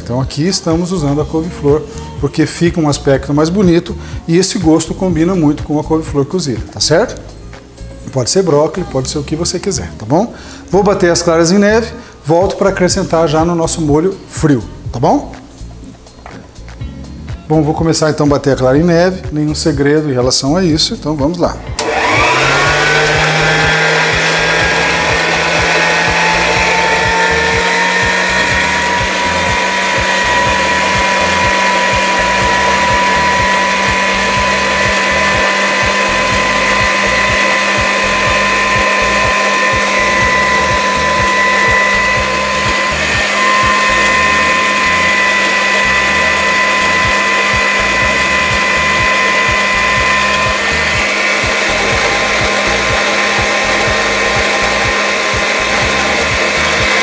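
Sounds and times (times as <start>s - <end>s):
electric mixer whining: 21.6s - 57.0s.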